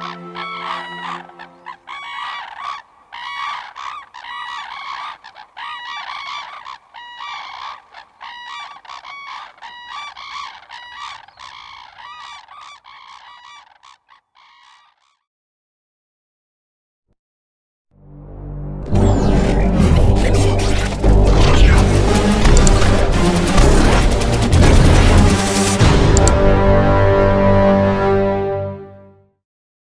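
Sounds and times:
cranes calling: 0.0s - 15.2s.

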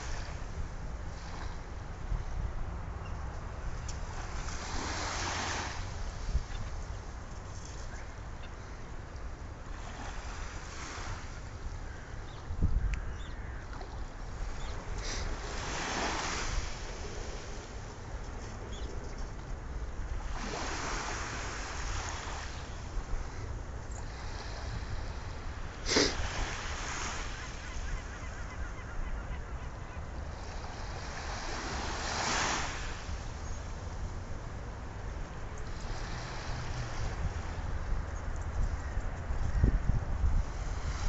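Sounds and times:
waves washing up shore: 0.0s - 2.1s, 3.6s - 12.2s, 13.7s - 18.1s, 20.0s - 28.1s, 30.0s - 35.0s, 35.7s - 37.9s, 40.4s - 41.0s
wind rumble on microphone: 0.0s - 8.3s, 8.9s - 26.9s, 27.6s - 41.0s.

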